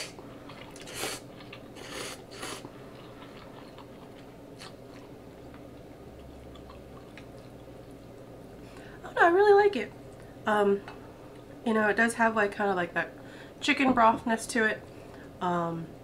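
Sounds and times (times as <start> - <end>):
person slurping noodles: 0.0 - 2.7
chewing with wet clicks: 0.4 - 1.7, 2.6 - 8.3.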